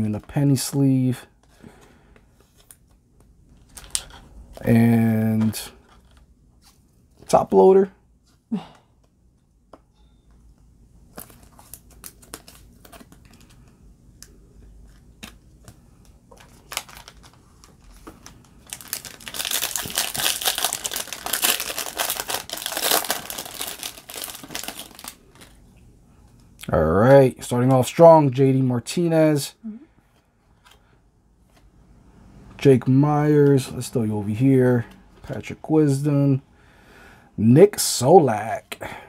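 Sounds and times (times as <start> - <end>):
foil wrapper crinkling and tearing: 16.4 - 25.6.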